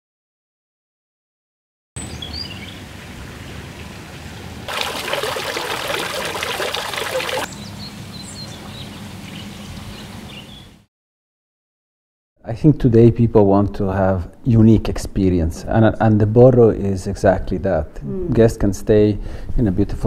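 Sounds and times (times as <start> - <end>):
birds chirping: 2.0 - 2.9, 4.7 - 10.8
fountain water splashing: 2.7 - 7.5.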